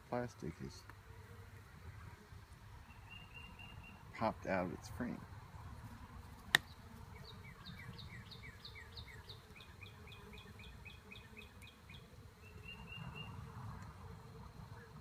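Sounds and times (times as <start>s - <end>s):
songbird singing: 2.4s - 5.2s, 6.3s - 13.9s
bird chirps: 2.8s - 4.2s, 6.6s - 13.4s
bees humming: 6.2s - 15.0s.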